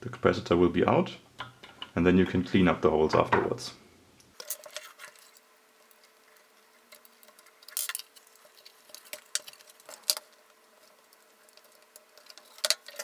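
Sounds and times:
soldering crackles and clicks: 0:04.2 - 0:13.0.

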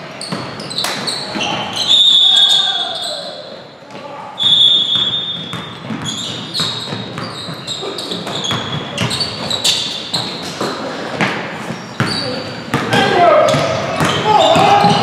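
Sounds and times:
sneakers squeaking: 0:00.0 - 0:15.0
basketball bouncing on wooden floor: 0:00.2 - 0:01.6, 0:04.9 - 0:15.0.

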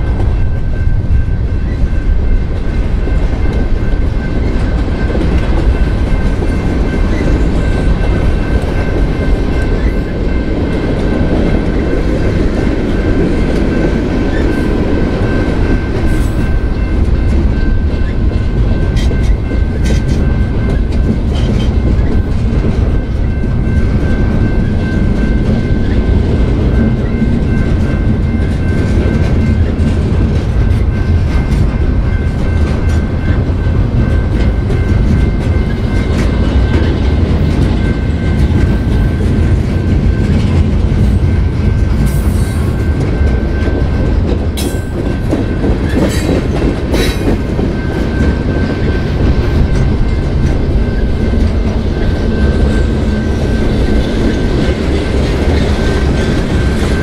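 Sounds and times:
freight train rumbling: 0:00.0 - 0:57.0.

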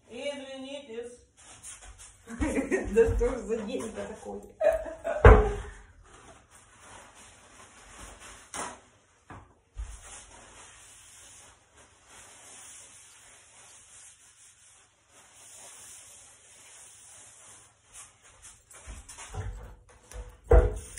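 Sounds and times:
paper towel rustling: 0:01.3 - 0:19.4.

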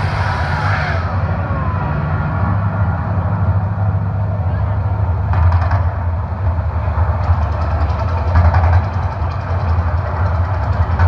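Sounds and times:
deep rumble over loudspeakers: 0:00.0 - 0:11.0.

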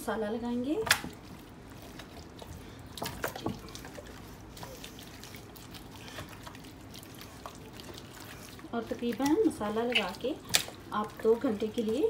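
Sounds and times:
sharp wet slaps: 0:00.8 - 0:01.2, 0:09.0 - 0:10.8
hands squelching marinade into chicken: 0:00.9 - 0:12.0.

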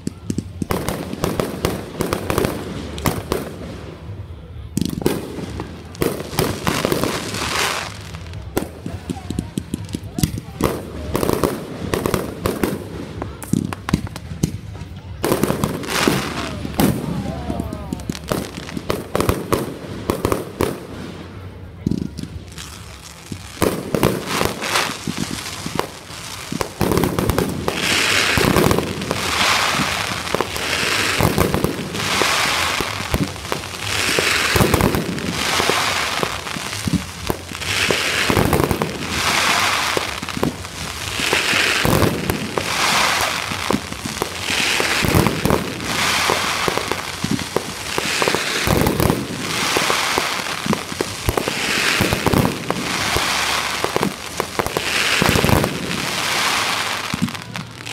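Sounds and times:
fireworks crackling: 0:00.0 - 0:57.9.

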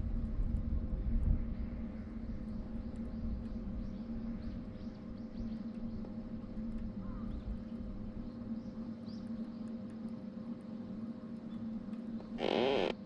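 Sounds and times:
rumble of water and wind: 0:00.0 - 0:13.0
electric motor hum: 0:12.2 - 0:13.0.

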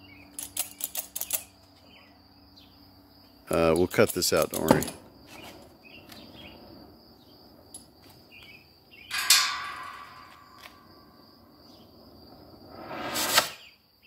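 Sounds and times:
cutting torch hissing: 0:12.3 - 0:13.7.

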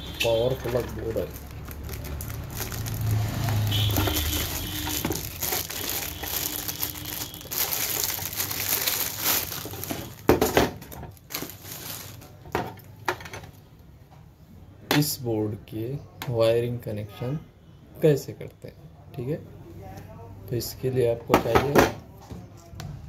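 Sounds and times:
plastic wrapping crinkling: 0:00.2 - 0:12.9
cardboard rustling: 0:00.3 - 0:12.4.

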